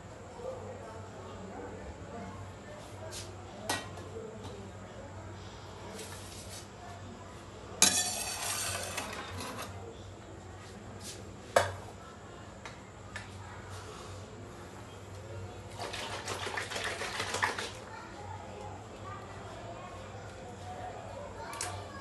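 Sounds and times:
knife blade scraping stone: 0:07.8 - 0:09.7.

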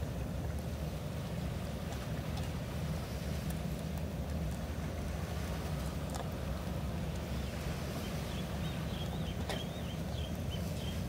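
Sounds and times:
bird chirping: 0:08.3 - 0:11.0.

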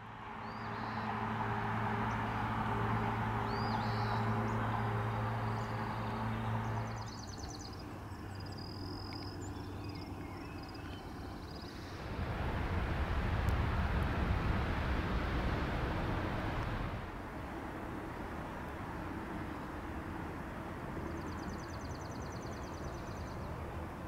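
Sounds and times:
mechanical hum: 0:00.5 - 0:22.2
small birds chirping: 0:03.4 - 0:04.7, 0:05.4 - 0:12.0.

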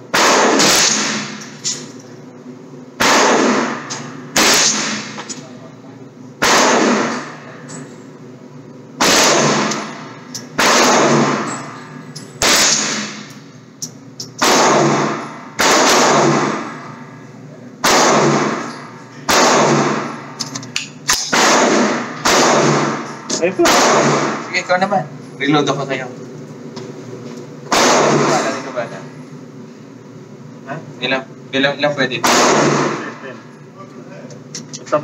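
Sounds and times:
gunshots with ringing echo: 0:00.1 - 0:01.5, 0:03.0 - 0:05.2, 0:06.4 - 0:07.5, 0:09.0 - 0:11.8, 0:12.4 - 0:13.3, 0:14.4 - 0:17.0, 0:17.8 - 0:20.4, 0:21.3 - 0:24.5, 0:27.7 - 0:28.6, 0:32.2 - 0:33.1.

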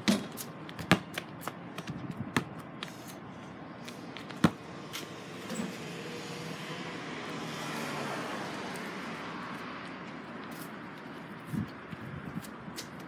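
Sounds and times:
basketball bouncing: 0:00.0 - 0:02.6, 0:04.2 - 0:04.6.

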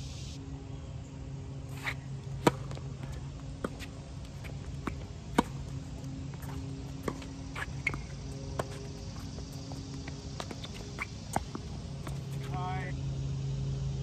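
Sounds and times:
low steady hum: 0:00.0 - 0:14.0
racket hitting tennis ball: 0:01.7 - 0:12.6
tennis ball bouncing: 0:01.7 - 0:12.7.

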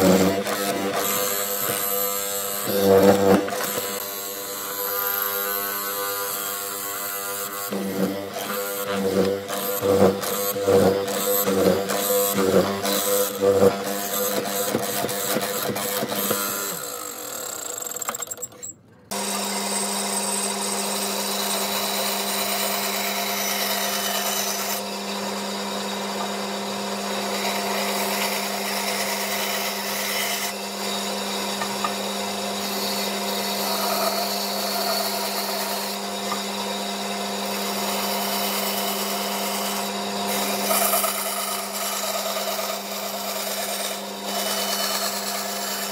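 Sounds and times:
mortiser plunging into wood: 0:00.0 - 0:06.0, 0:07.6 - 0:16.9
bandsaw cutting wood blocks: 0:00.0 - 0:45.9.

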